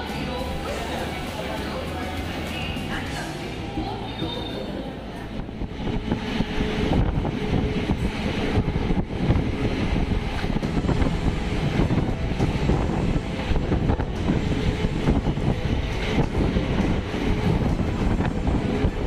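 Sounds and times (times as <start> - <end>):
train wheels rumbling on rails: 0.0 - 19.0
wind buffeting microphone: 5.0 - 19.0.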